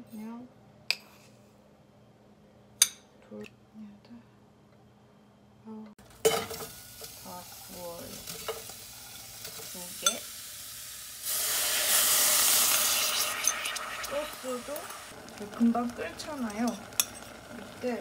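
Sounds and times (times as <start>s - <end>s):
onions sizzling in a pan: 6.0s - 18.0s
sauce sizzling loudly: 6.1s - 18.0s.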